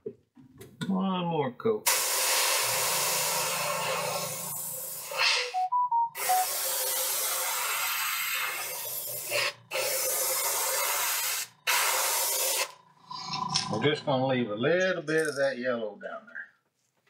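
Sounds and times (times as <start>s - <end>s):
airbrush spraying paint: 1.9s - 5.6s, 6.2s - 12.8s
short whistle-like notes: 5.2s - 6.6s.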